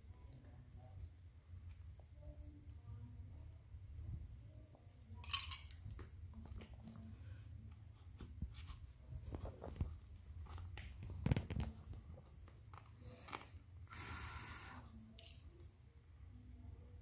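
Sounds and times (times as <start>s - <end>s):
rubbing hiss: 13.1s - 15.0s.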